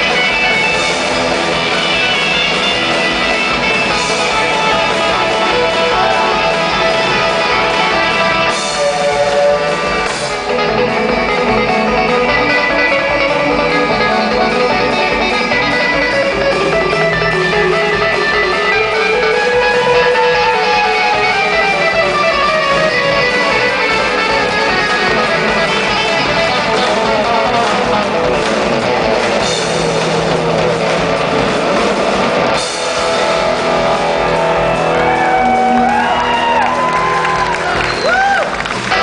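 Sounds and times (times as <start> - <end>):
bass guitar: 0.0 - 39.0
drums: 0.0 - 39.0
electric guitar lead runs: 0.0 - 39.0.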